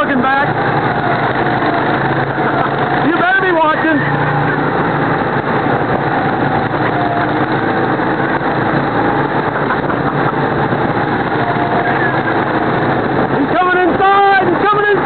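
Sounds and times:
go-kart engines running: 0.0s - 15.0s.

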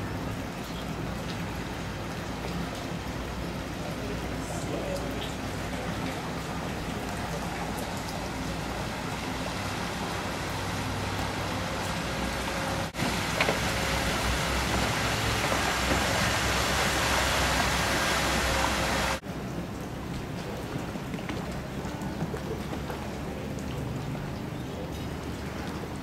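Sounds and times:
water hiss: 3.9s - 19.2s.

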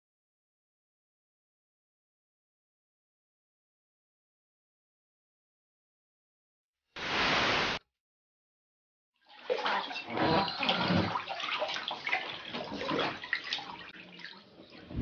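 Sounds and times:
water splashing in bath: 9.3s - 15.0s.

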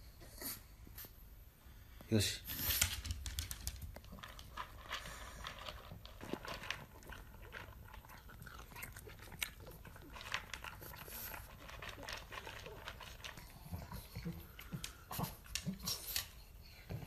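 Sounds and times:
dog crunching and chewing food: 2.7s - 16.4s.

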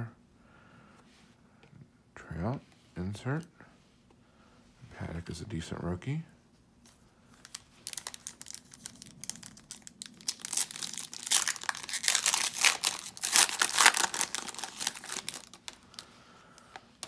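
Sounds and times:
foil wrapper crinkling and tearing: 7.4s - 16.7s.

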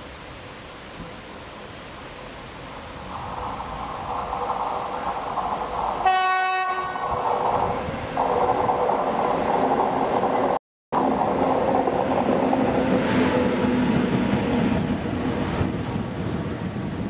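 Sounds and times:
electric locomotive hum: 0.0s - 17.0s
wheels on rails: 2.6s - 6.2s.

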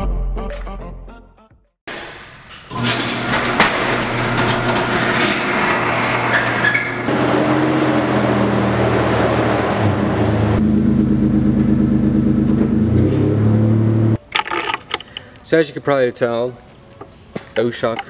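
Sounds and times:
garage door rattling open: 1.9s - 7.6s
car engine running: 7.1s - 14.2s.

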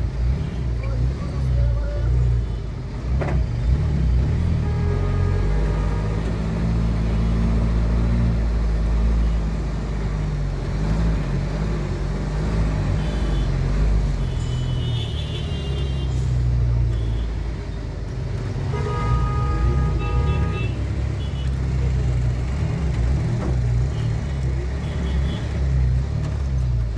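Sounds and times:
engine rumble and road noise: 0.0s - 26.9s
vehicle horns: 4.5s - 6.7s, 12.9s - 17.4s, 18.6s - 21.6s, 24.8s - 25.6s.

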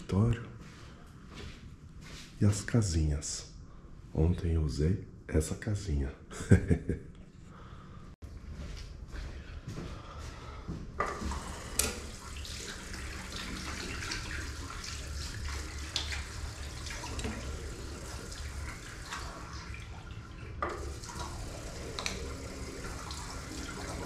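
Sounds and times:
tap running into basin: 11.0s - 24.0s.

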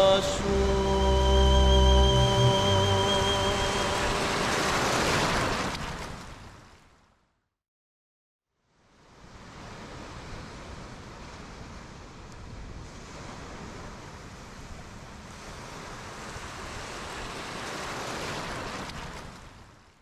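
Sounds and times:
ocean waves breaking: 0.0s - 6.9s, 12.8s - 19.8s.

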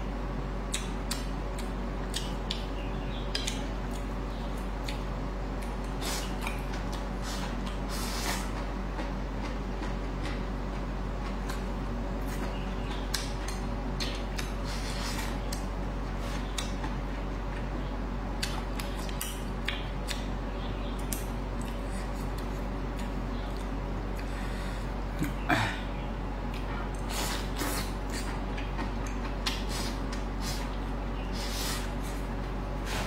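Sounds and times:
steady low hum: 0.0s - 33.0s
chewing and mouth smacking: 0.7s - 2.7s, 18.4s - 20.3s, 21.0s - 24.3s, 26.5s - 30.6s.

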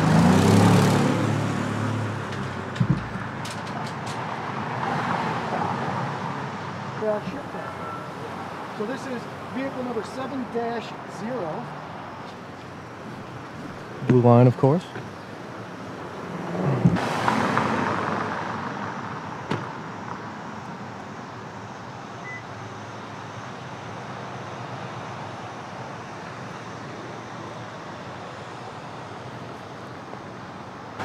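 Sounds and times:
car driving past: 0.0s - 3.3s, 16.2s - 19.8s
traffic hum: 0.0s - 31.0s.

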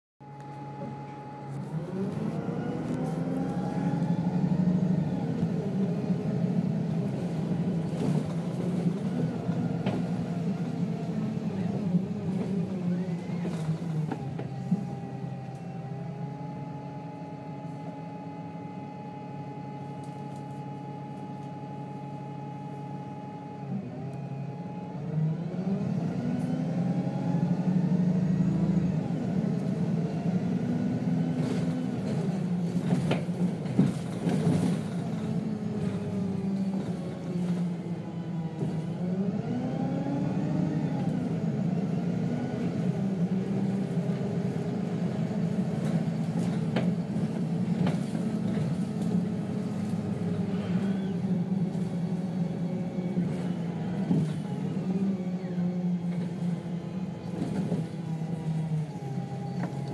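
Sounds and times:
bus engine accelerating: 0.2s - 59.9s.

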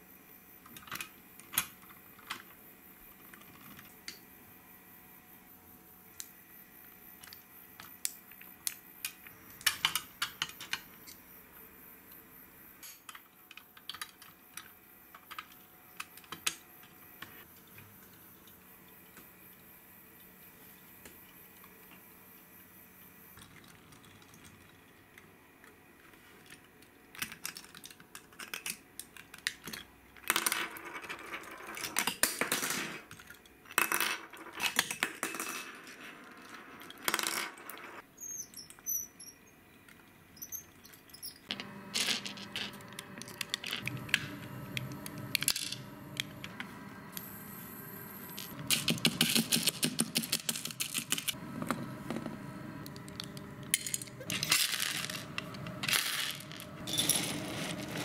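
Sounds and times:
toy vehicles clattering on wooden table: 27.2s - 37.9s.

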